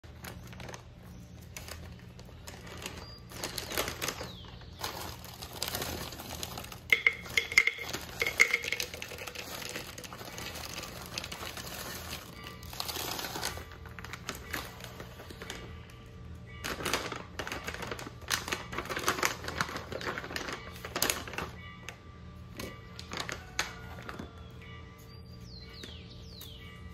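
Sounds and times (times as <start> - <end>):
plastic bags crinkling: 0.1 - 21.7, 22.6 - 24.4
berries clattering in plastic cup: 2.5 - 14.7.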